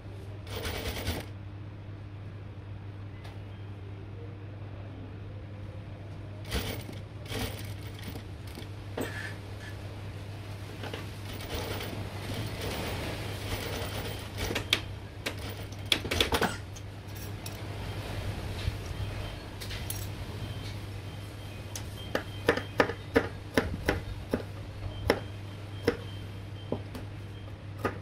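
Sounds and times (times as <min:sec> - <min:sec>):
sewing machine humming: 0:00.5 - 0:01.3, 0:06.5 - 0:08.7, 0:11.2 - 0:16.3.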